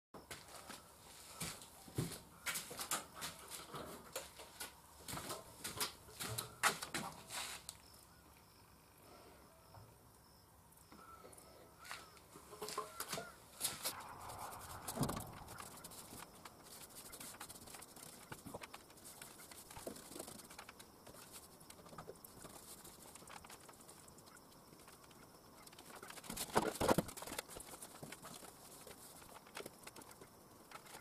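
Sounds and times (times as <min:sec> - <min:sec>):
faint chirps: 0:07.8 - 0:26.3
paintbrush on metal ceiling: 0:12.4 - 0:26.4, 0:27.2 - 0:31.0.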